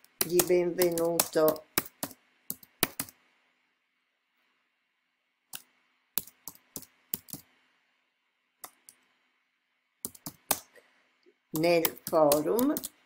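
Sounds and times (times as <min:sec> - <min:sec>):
keyboard keystrokes: 0:00.1 - 0:03.2, 0:05.5 - 0:07.5, 0:10.1 - 0:10.6, 0:11.6 - 0:13.0.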